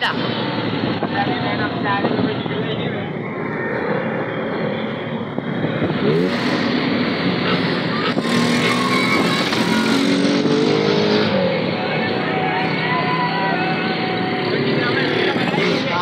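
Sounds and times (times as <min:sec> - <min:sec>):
auto rickshaw engines revving: 0:00.0 - 0:16.0
road and wind noise: 0:00.0 - 0:16.0.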